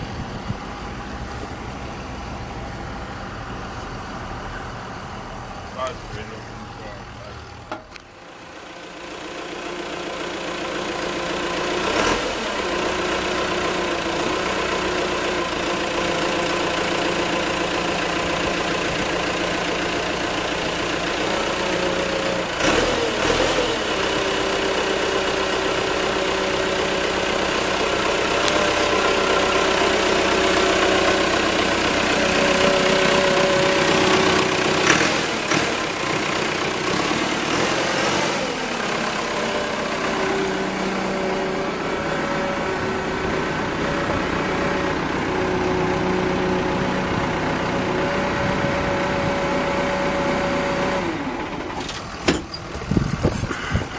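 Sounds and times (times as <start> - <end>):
diesel engine idling: 0.0 - 53.9
engine knocks: 51.1 - 53.9.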